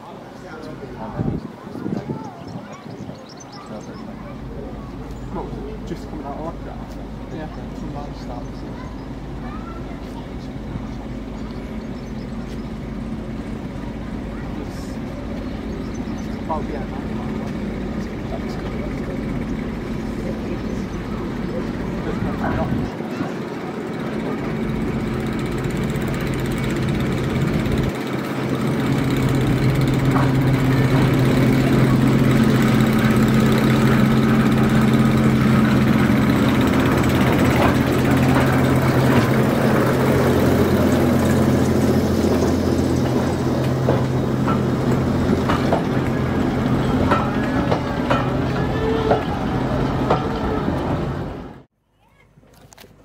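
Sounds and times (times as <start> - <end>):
diesel locomotive engine drone: 0.0 - 51.7
clicks and knocks of wheels on rails: 25.7 - 51.2.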